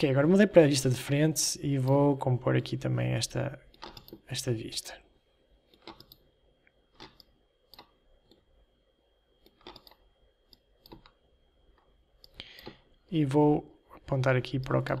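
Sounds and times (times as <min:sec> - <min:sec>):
computer mouse and keyboard clicks: 0:03.7 - 0:04.3, 0:05.7 - 0:06.2, 0:06.9 - 0:08.5, 0:09.4 - 0:11.2.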